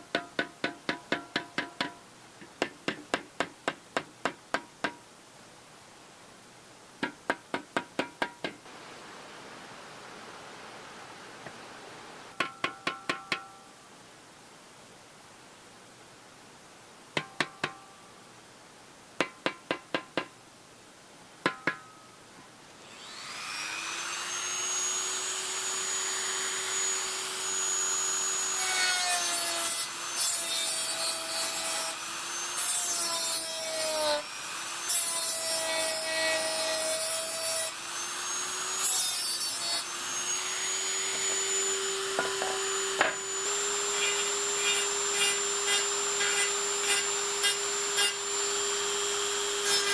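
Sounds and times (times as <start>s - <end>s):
rotary tool grinding metal: 23.0s - 49.9s.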